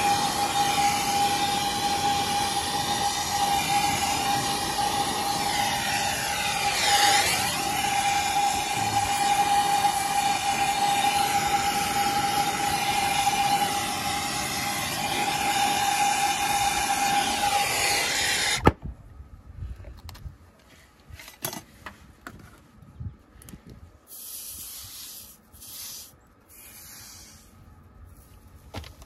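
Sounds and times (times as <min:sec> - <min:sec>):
torch flame hissing and whistling: 0:00.0 - 0:18.7, 0:24.1 - 0:27.5
torch flame shut-off pop: 0:17.2 - 0:18.8.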